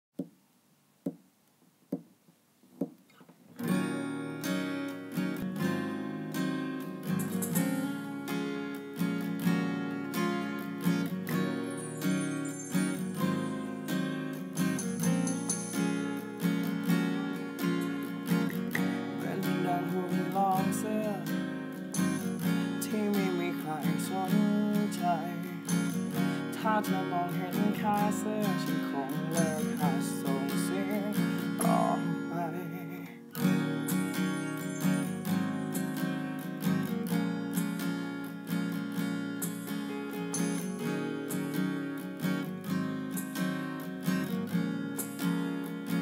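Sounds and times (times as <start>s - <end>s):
sharp taps: 0.2s - 0.4s, 1.0s - 1.2s, 2.8s - 3.1s
acoustic guitar strumming chords: 3.6s - 46.0s.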